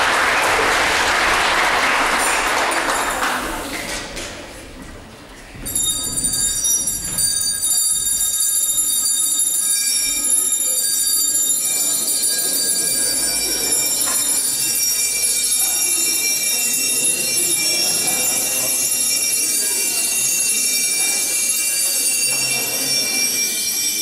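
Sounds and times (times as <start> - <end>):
high ringing tones: 5.6 - 24.0.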